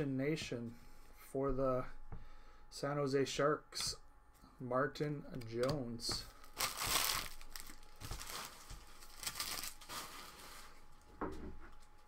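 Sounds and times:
foil wrapper crinkling: 6.3 - 11.1.

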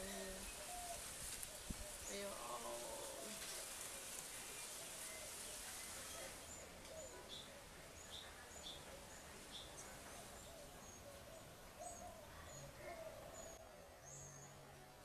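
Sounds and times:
steady hiss: 0.0 - 10.4.

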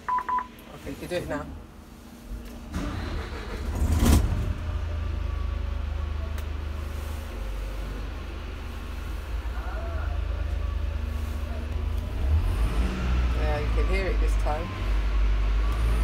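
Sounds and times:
bus diesel engine idling: 0.6 - 16.0
starter motor cranking: 2.7 - 4.4.

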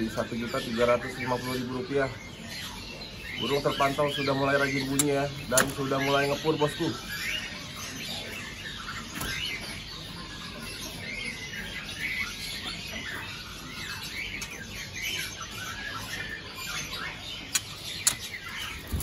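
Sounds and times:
songbirds chirping and warbling: 0.0 - 19.0
sharp click: 17.5 - 18.3.

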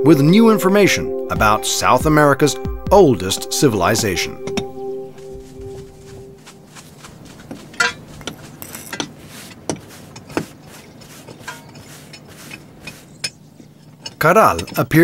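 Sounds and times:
metal trowels scraping on stone: 7.5 - 15.0.

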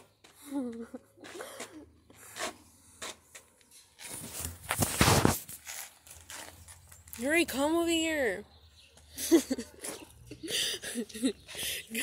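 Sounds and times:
phone scraping against clothing: 4.0 - 6.7.

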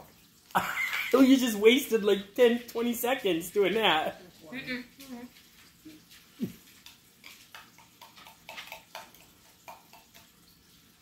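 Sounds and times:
person chewing food: 4.9 - 10.4.

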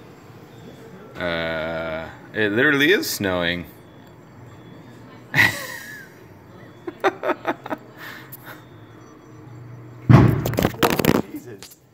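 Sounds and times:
transformer explosion boom: 10.1 - 11.2
crackling rumble: 10.1 - 11.8.

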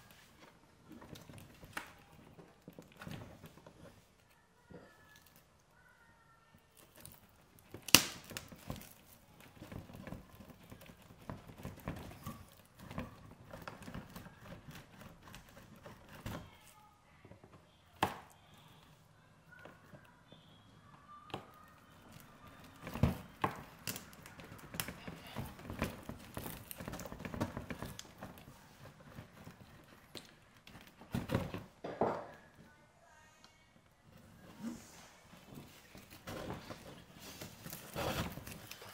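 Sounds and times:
bark rustling and crackling: 6.5 - 20.2, 21.3 - 31.8, 35.5 - 38.9.

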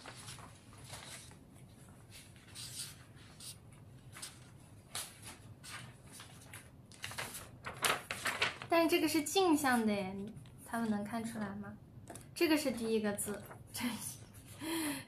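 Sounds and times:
marker pen scratching on paper: 2.2 - 3.6.

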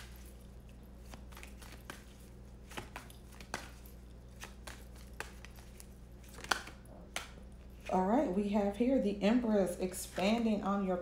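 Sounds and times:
cards being shuffled: 0.0 - 8.0
low steady hum: 0.0 - 11.0.

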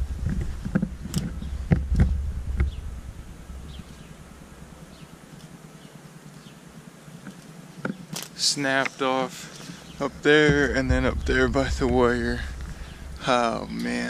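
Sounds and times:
wind rumble on microphone: 0.0 - 4.4, 10.0 - 13.8
footsteps crunching on twigs: 7.2 - 13.2.

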